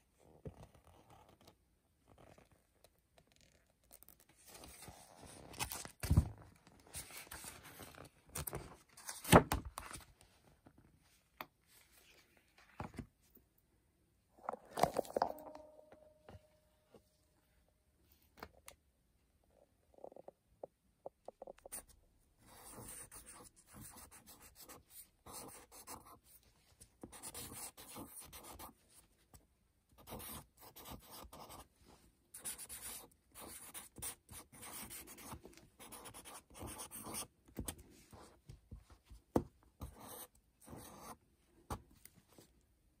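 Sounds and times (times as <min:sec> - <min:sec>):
marker scratching on paper: 0:22.5 - 0:26.2, 0:27.0 - 0:28.7, 0:32.3 - 0:37.3.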